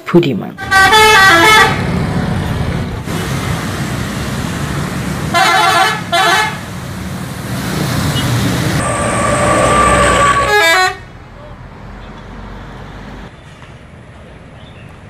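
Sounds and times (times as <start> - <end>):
traffic noise: 0.0 - 15.0
multi-tone bus horn: 0.6 - 1.9, 5.3 - 6.7, 8.2 - 11.1
bus engine: 0.6 - 15.0.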